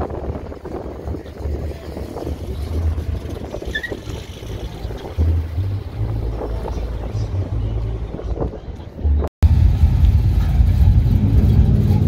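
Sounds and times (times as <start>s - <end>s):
wind buffeting microphone: 0.0s - 9.3s
car engines: 0.0s - 12.0s.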